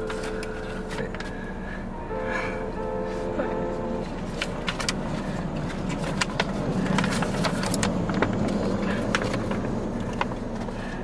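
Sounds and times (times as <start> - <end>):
low hum inside car: 0.0 - 11.0
paper crackling and rustling: 4.1 - 10.8.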